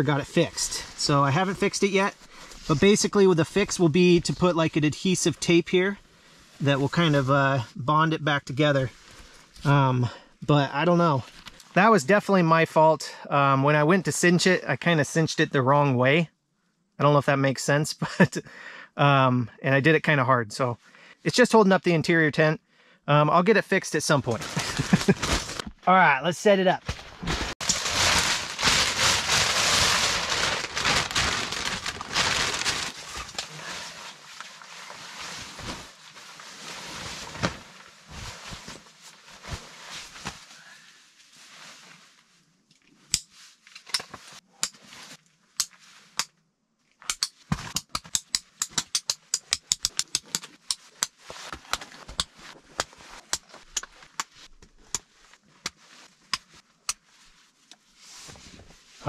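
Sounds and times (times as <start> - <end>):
tent fabric rustling: 24.3 - 25.7, 26.8 - 42.4.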